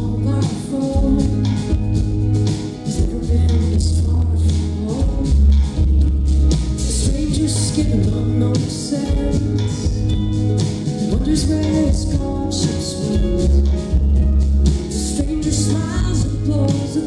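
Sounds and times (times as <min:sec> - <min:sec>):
person singing wordless line: 0:00.0 - 0:01.8, 0:02.8 - 0:05.8, 0:06.8 - 0:10.1, 0:11.1 - 0:13.8, 0:14.8 - 0:17.0
live band playing: 0:00.0 - 0:17.0.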